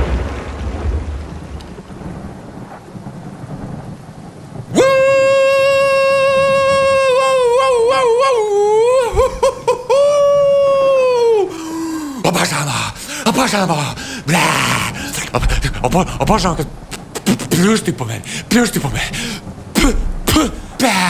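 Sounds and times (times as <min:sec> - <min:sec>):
steady rain: 0:00.0 - 0:21.0
man singing a long cry: 0:04.7 - 0:16.6.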